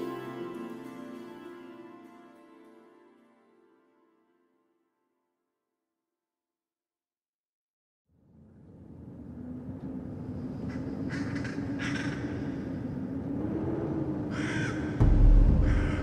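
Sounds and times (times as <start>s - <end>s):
crow-like cawing: 11.1s - 12.7s, 14.3s - 16.0s
loud deep boom: 15.0s - 16.0s
low steady drone: 15.0s - 16.0s.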